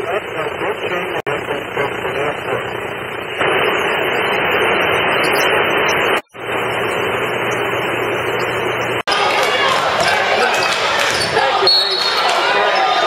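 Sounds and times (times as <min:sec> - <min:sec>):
crowd noise in a gym: 0:00.0 - 0:04.1, 0:06.2 - 0:13.0.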